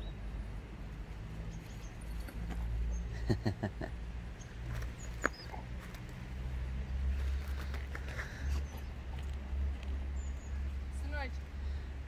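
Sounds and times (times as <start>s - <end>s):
dog whining: 5.0s - 5.7s.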